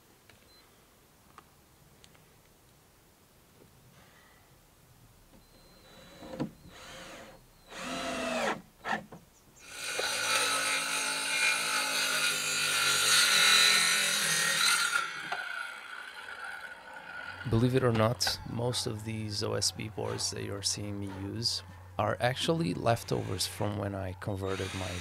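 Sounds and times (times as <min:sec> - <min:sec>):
power tool cutting wood: 0:05.8 - 0:09.0, 0:09.6 - 0:21.1, 0:22.4 - 0:25.0.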